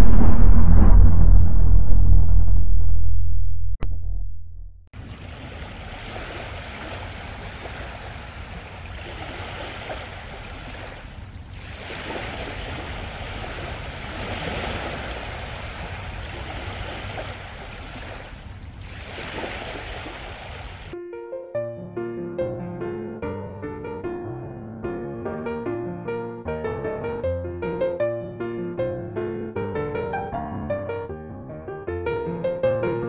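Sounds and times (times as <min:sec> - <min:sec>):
rushing water: 0:05.0 - 0:21.0.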